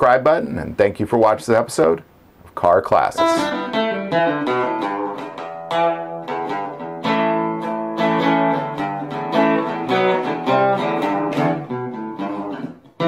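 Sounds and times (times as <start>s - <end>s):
solo guitar picking a melody: 3.1s - 13.0s.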